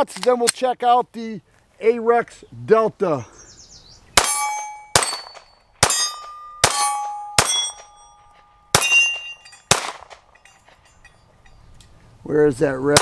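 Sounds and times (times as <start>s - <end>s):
pistol shots: 4.2s - 7.9s, 8.7s - 10.3s
ring of steel target hit: 4.2s - 9.8s.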